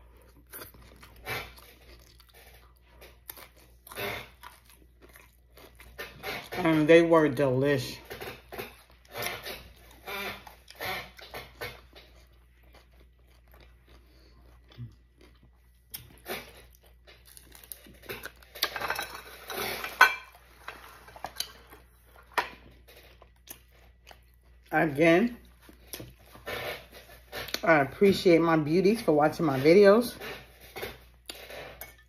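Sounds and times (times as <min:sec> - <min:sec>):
chewing and crunching: 0:00.0 - 0:28.3, 0:29.0 - 0:32.0
dishes and cutlery clinking: 0:18.6 - 0:21.6, 0:31.6 - 0:32.0.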